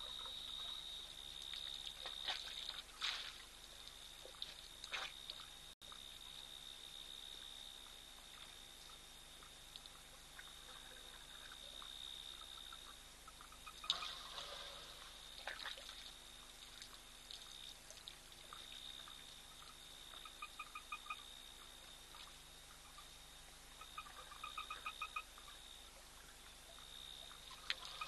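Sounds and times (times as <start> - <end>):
water pouring and splashing: 1.4 - 5.6, 13.8 - 18.9
frog calling in pulses: 10.6 - 15.1, 20.1 - 21.4, 23.8 - 25.7.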